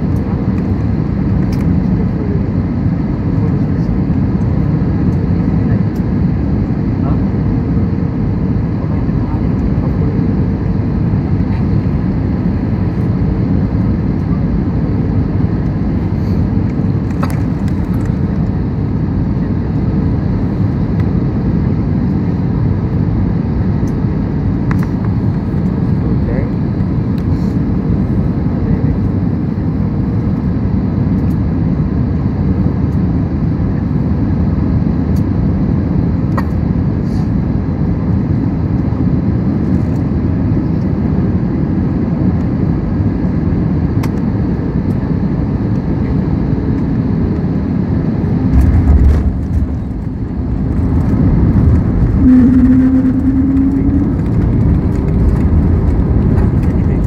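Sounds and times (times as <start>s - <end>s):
jet engine and air roar: 0.0s - 57.0s
engines spooling up: 51.6s - 54.6s.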